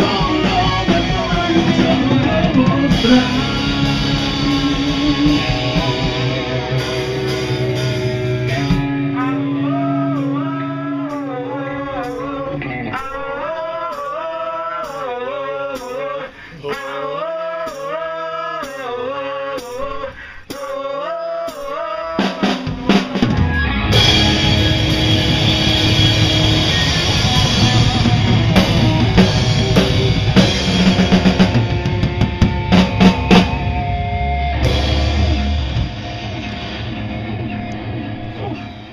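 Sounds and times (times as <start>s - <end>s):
drum kit crashing: 0.0s - 9.2s, 21.5s - 38.9s
rock band playing: 0.0s - 15.0s, 22.2s - 38.9s
person singing: 0.0s - 35.5s.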